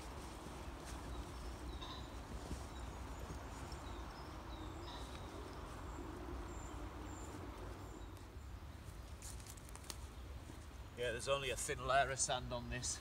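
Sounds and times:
faint bird chirps: 0.7s - 9.0s.

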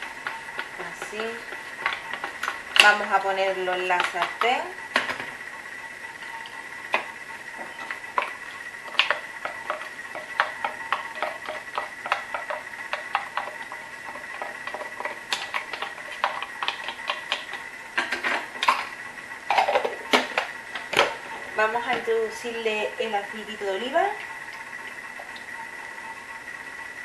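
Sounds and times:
steady high whine: 0.0s - 27.0s.

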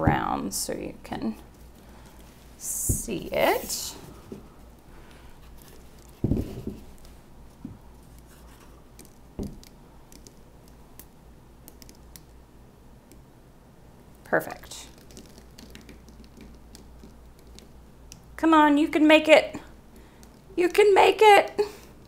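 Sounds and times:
light ticking and scratching: 14.4s - 18.3s.

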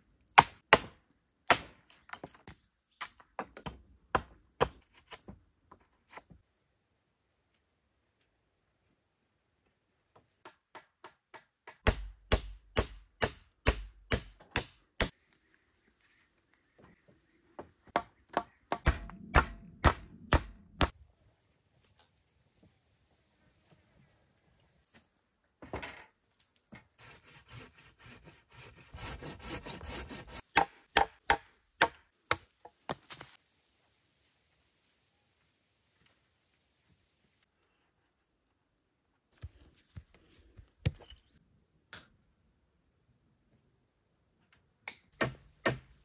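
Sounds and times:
hand tool striking wood: 10.5s - 15.1s, 18.0s - 20.9s
wood rubbing or sawing: 27.0s - 30.4s.

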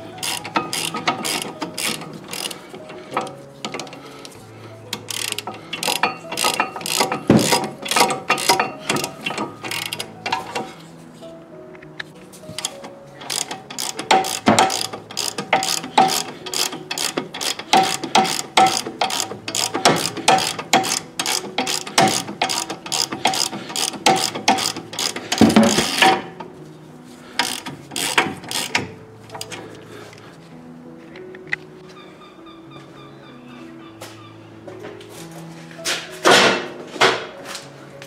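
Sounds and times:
ratchet wrench clicking: 0.0s - 4.0s, 5.0s - 10.7s, 12.5s - 26.3s, 27.4s - 29.6s.

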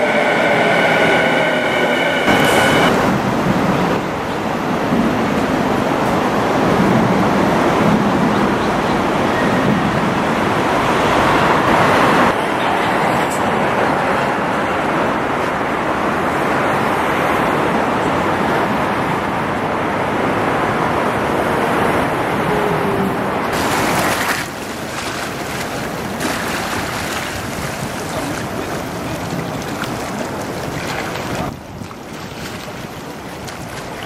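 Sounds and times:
road traffic rushing: 0.0s - 5.0s.

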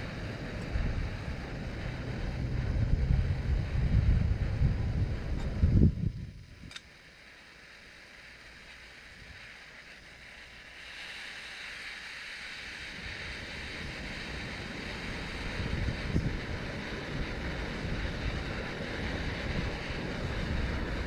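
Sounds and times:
camping stove hissing: 0.0s - 21.0s
low wind rumble on microphone: 0.0s - 21.0s.

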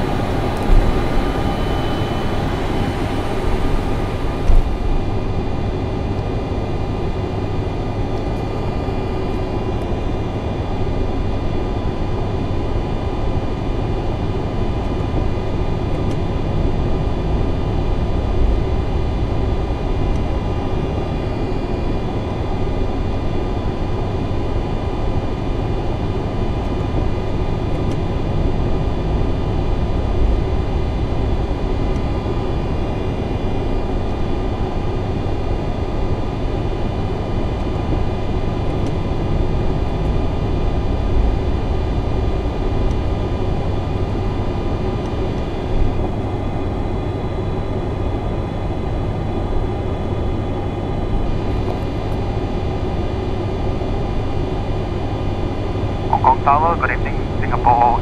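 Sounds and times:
steady whining tones: 0.0s - 10.8s
jet engines idling rumble: 0.0s - 58.0s.

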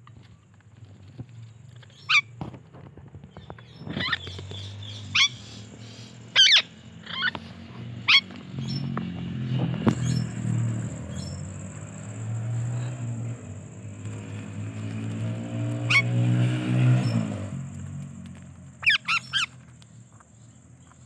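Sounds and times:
parakeet squawking: 3.8s - 7.4s, 8.0s - 8.8s, 15.8s - 16.2s, 18.8s - 19.5s.

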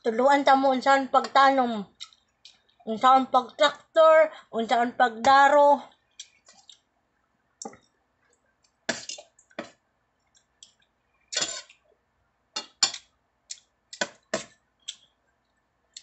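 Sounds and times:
cutlery clinking against metal bowl: 11.4s - 11.8s, 12.6s - 13.1s.

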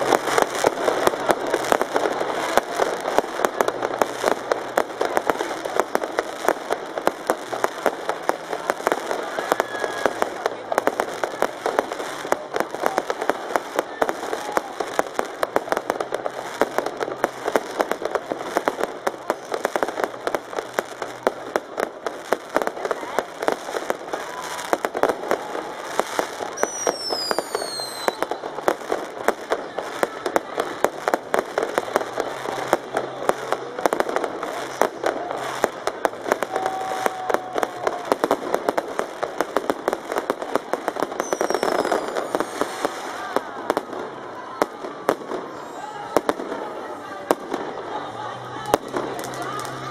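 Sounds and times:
fireworks bangs and crackles: 0.0s - 49.9s
firework whistle falling: 26.5s - 28.4s, 41.2s - 43.2s.

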